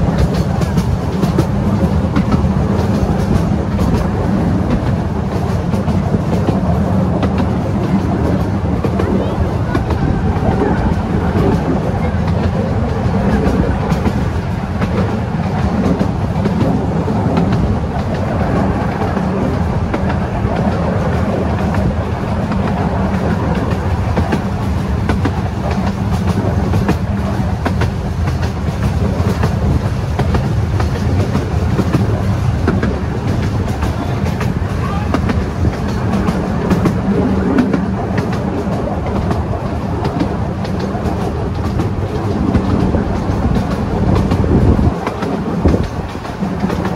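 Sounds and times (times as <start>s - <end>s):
light clicks of wheels on rails: 0.0s - 46.9s
miniature train wheels rumbling: 0.0s - 46.9s.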